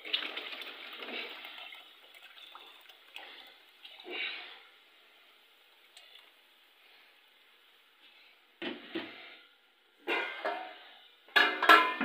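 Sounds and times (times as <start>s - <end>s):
milk pouring and splashing: 0.0s - 7.0s.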